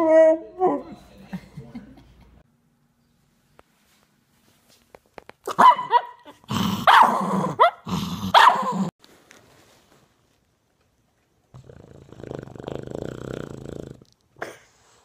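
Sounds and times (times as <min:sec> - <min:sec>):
dog barking and growling: 0:05.4 - 0:08.9.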